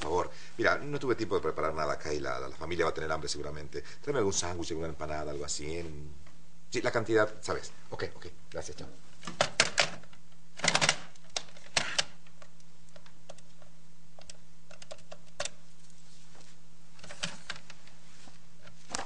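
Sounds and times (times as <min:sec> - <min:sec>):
steady low hum: 0:00.0 - 0:19.0
telephone clicks and clacks: 0:09.2 - 0:12.1, 0:14.2 - 0:15.6.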